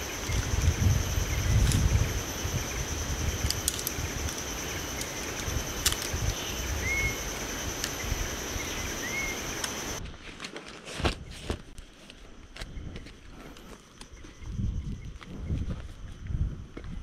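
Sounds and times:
high insect drone: 0:00.0 - 0:10.0, 0:12.2 - 0:17.0
bird whistle upslurred: 0:06.4 - 0:07.2.

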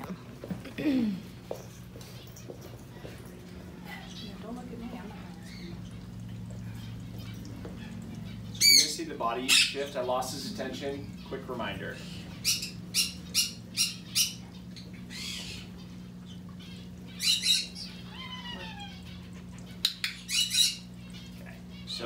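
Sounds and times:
steady low hum: 0:00.0 - 0:22.0
parrot squawking: 0:06.6 - 0:22.0
parrot whistled call: 0:17.2 - 0:19.0.

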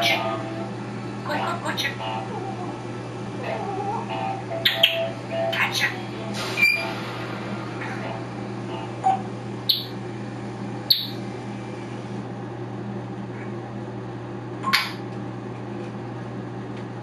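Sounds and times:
steady low hum: 0:00.0 - 0:17.0
parrot chirping and clicking: 0:04.6 - 0:05.9, 0:09.7 - 0:10.0, 0:10.9 - 0:11.2, 0:14.7 - 0:15.0.

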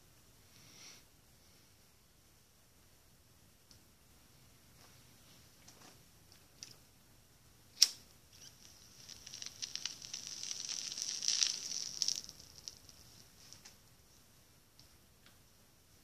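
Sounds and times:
crackling and sizzling smoke: 0:07.7 - 0:14.9.

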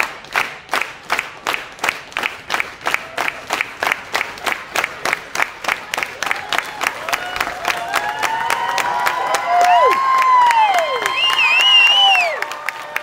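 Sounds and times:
crowd clapping in rhythm: 0:00.0 - 0:13.0
crowd cheering: 0:02.8 - 0:13.0.

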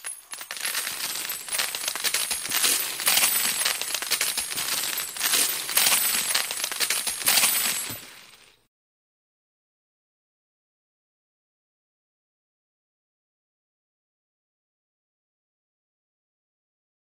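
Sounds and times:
metal coins pouring and clinking: 0:00.0 - 0:08.6.

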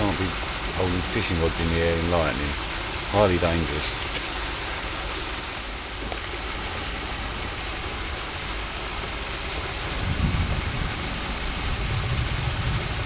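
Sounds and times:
rain hissing: 0:00.0 - 0:13.0
low thunder rumble: 0:09.4 - 0:13.0.

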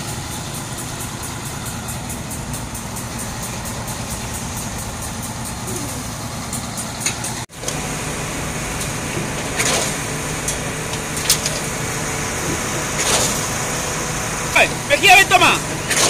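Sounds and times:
truck engine drone: 0:00.0 - 0:16.0.

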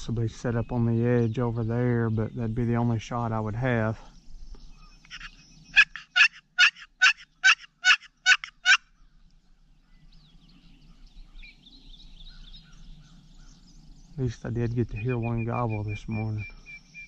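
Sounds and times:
turkey box call yelps: 0:05.1 - 0:08.8.

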